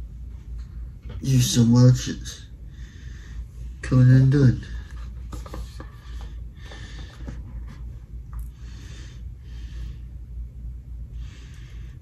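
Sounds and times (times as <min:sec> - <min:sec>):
breathing close to microphone: 0:02.6 - 0:03.8, 0:04.7 - 0:07.9, 0:08.5 - 0:10.2, 0:11.1 - 0:12.0
phone and cord rustling and clicks: 0:04.9 - 0:08.5.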